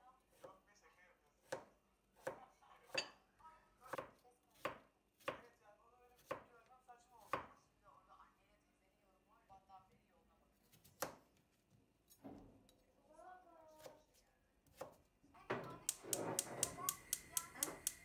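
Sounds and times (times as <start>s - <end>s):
knife chopping on cutting board: 1.4s - 3.1s, 3.9s - 5.5s, 6.2s - 6.5s, 7.2s - 7.6s, 10.7s - 11.2s.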